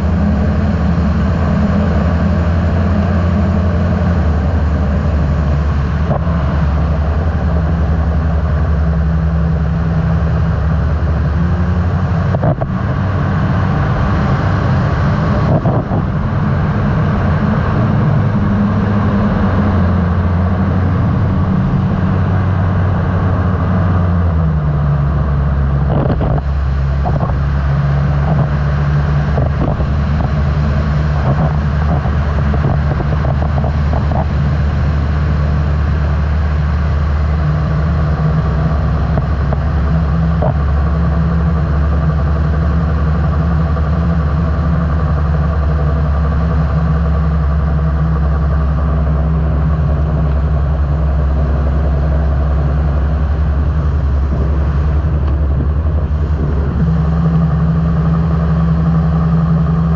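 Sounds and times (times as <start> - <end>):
aircraft engine running: 0.0 - 59.9
wind rushing past microphone: 49.4 - 59.9.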